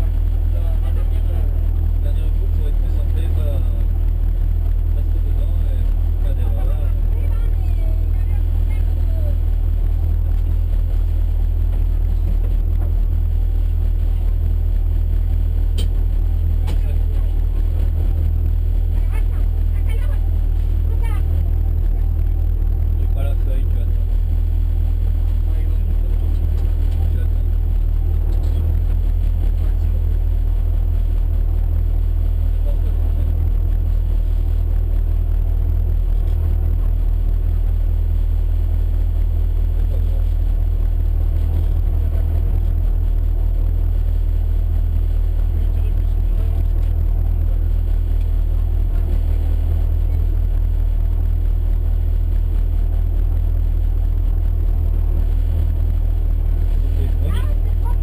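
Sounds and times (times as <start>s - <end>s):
car engine idling: 0.0s - 58.0s.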